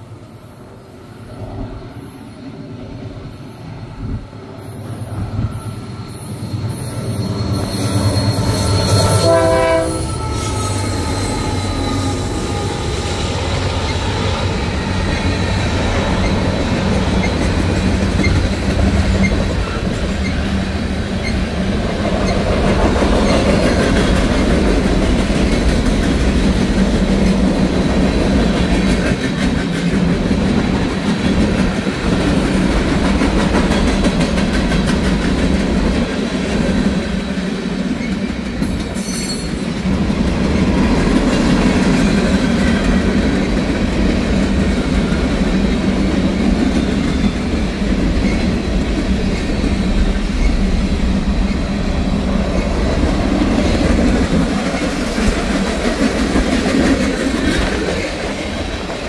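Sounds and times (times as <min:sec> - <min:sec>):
freight train rumble: 0:00.0 - 0:59.0
train wheel screech: 0:03.3 - 0:20.6, 0:22.1 - 0:26.4, 0:37.2 - 0:43.6.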